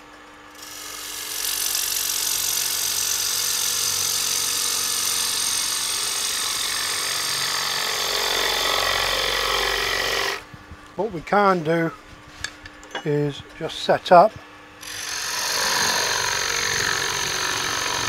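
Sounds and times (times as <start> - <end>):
gouge cutting wood on lathe: 0.6 - 10.4, 14.8 - 18.0.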